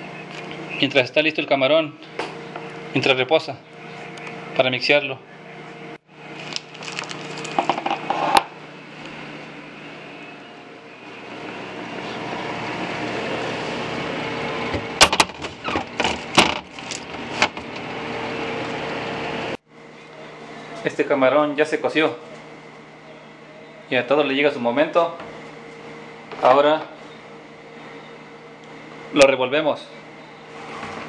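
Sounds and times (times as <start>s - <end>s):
refrigerator hum: 0.0s - 31.0s.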